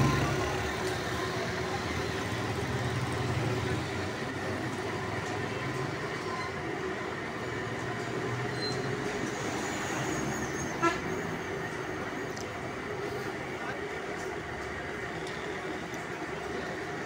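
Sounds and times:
rumbling background din: 0:00.0 - 0:17.0.

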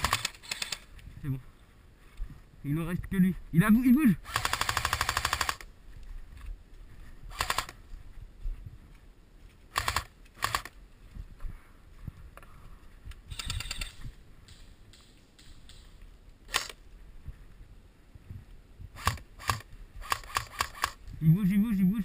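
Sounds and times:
airsoft rifle firing bursts: 0:00.0 - 0:00.8, 0:04.2 - 0:05.6, 0:09.7 - 0:10.7, 0:19.0 - 0:21.0.

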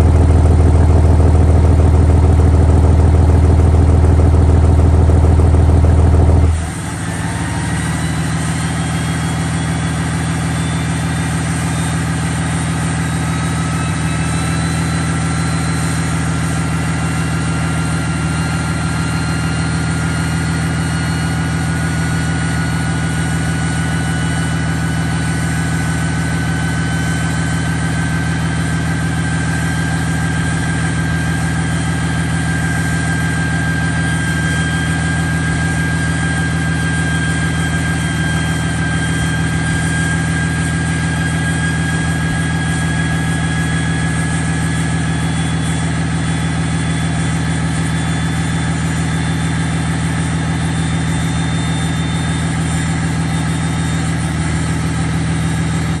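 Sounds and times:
diesel engine idling: 0:00.0 - 0:56.0
high turbo whine: 0:00.0 - 0:56.0.

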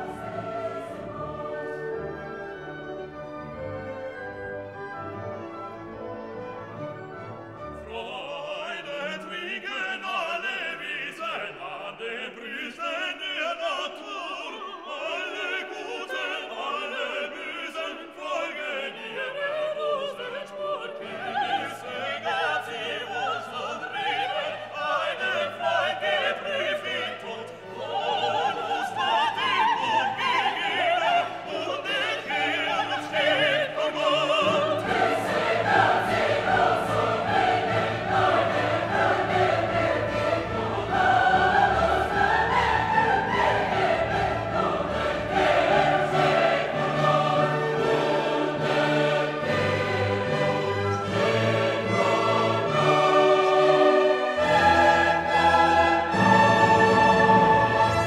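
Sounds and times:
orchestra playing: 0:00.0 - 0:09.6, 0:25.6 - 0:58.0
operatic choral singing: 0:00.0 - 0:58.0.

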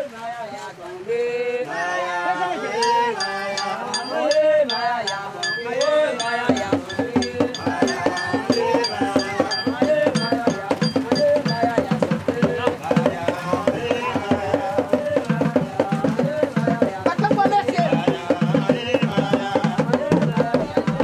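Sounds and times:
people singing: 0:00.0 - 0:21.0
drum strokes: 0:02.7 - 0:21.0
metallic clink on a beat: 0:02.8 - 0:11.8.

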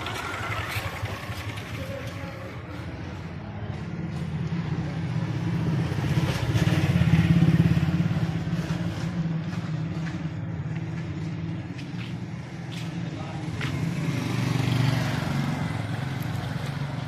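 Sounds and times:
small motorcycle engine running: 0:00.0 - 0:03.3.

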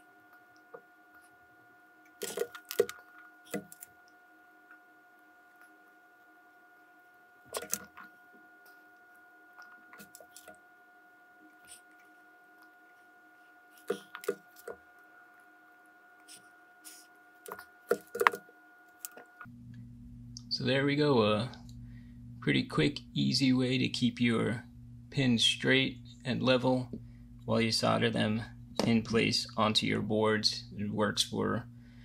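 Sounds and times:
faint steady hum: 0:00.0 - 0:32.0
soldering tools clicking and tapping: 0:17.5 - 0:18.4.

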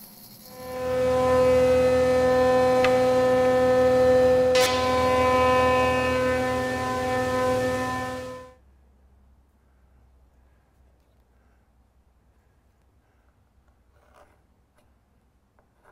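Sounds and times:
thickness planer whining: 0:00.5 - 0:08.5.

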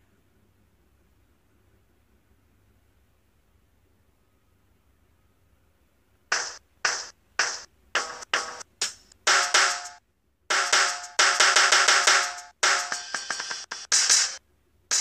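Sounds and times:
sampled drum hits: 0:06.3 - 0:14.3.

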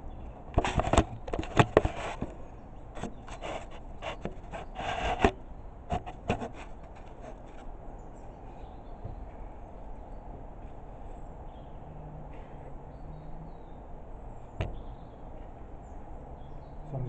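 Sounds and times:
wood knocking and scraping on wood: 0:00.5 - 0:02.4, 0:03.0 - 0:07.7.

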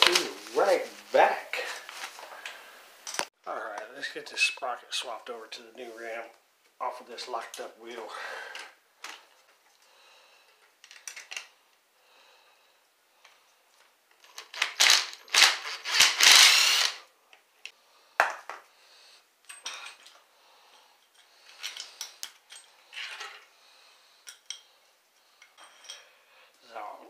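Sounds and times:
impact driver running: 0:14.7 - 0:17.0.

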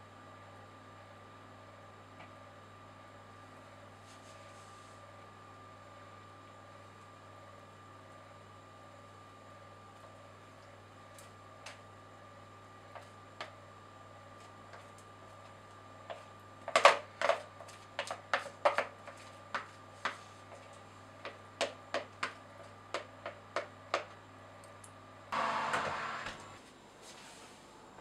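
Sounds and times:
batter clicks and taps in bowl: 0:21.2 - 0:25.0.

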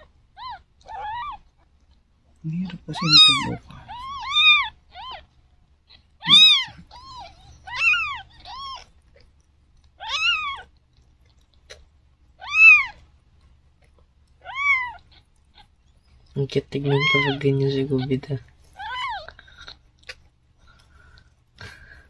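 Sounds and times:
kittens mewing: 0:00.0 - 0:01.6, 0:02.6 - 0:09.3, 0:09.9 - 0:10.8, 0:11.6 - 0:13.0, 0:14.4 - 0:15.8, 0:16.8 - 0:22.0.

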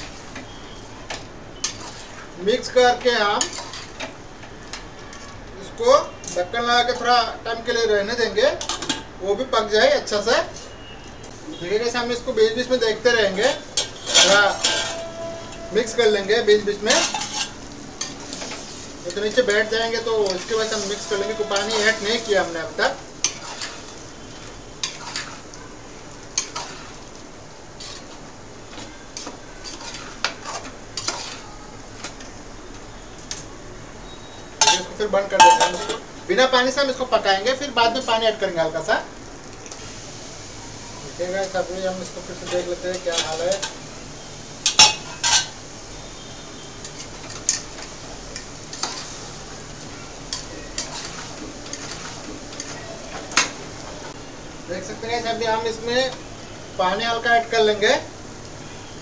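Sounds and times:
low simmering hiss: 0:00.0 - 0:59.0
vegetables sizzling: 0:00.0 - 0:59.0
spoon clinking and scraping pot: 0:01.6 - 0:02.2, 0:03.4 - 0:04.1, 0:13.8 - 0:16.2, 0:16.8 - 0:22.6, 0:23.2 - 0:24.0, 0:24.8 - 0:25.5, 0:26.4 - 0:27.0, 0:27.8 - 0:32.2, 0:34.6 - 0:36.0, 0:44.6 - 0:45.6, 0:46.8 - 0:49.2, 0:50.3 - 0:53.6
metal clinking against pot: 0:13.8 - 0:15.7, 0:34.6 - 0:36.0, 0:44.6 - 0:45.6.

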